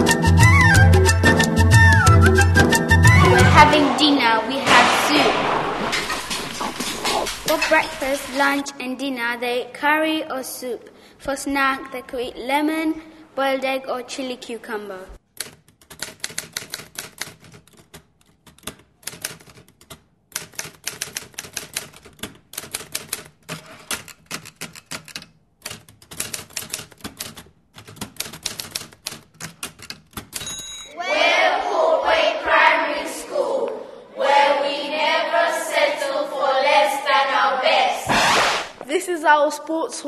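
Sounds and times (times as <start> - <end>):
voices: 3.3 - 8.8
fast irregular clicking: 15.4 - 30.4.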